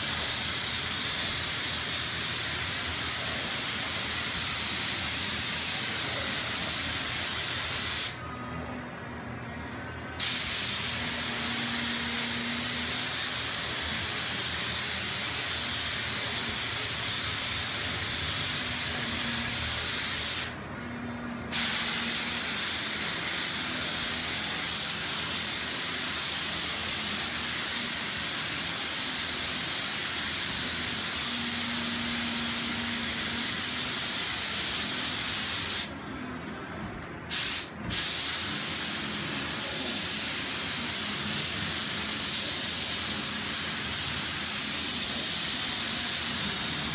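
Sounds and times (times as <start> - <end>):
spray gun hissing: 10.2 - 20.5, 21.5 - 35.9, 37.3 - 46.9.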